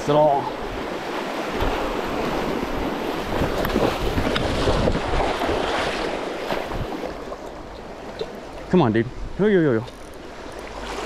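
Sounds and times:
wind rumble on microphone: 1.5s - 7.3s.

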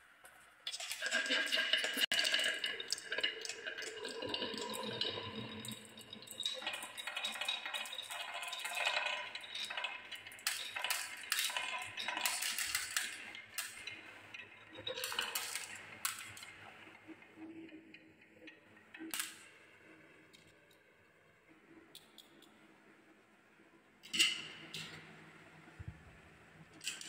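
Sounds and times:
marbles rolling on wooden track: 0.7s - 18.0s.

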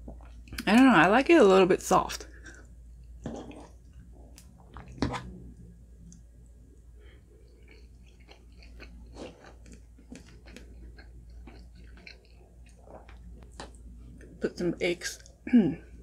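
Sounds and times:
person chewing: 2.4s - 5.4s, 7.3s - 14.3s.

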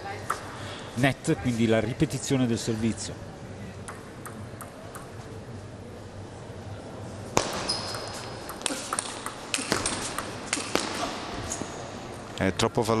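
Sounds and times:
table tennis rally strikes: 3.8s - 5.1s, 7.3s - 11.8s
table tennis ball bouncing: 3.8s - 5.2s, 7.4s - 11.3s.

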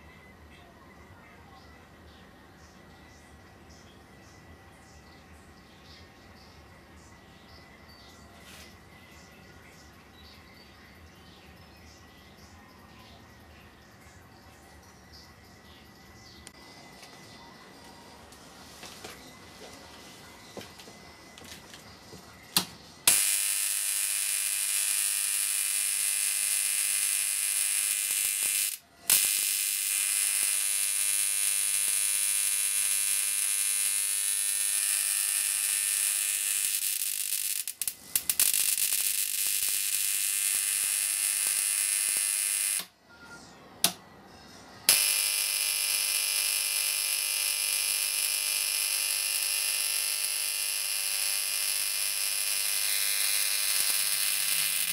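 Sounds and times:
electric arc buzzing hiss: 23.0s - 42.9s, 44.9s - 54.9s.

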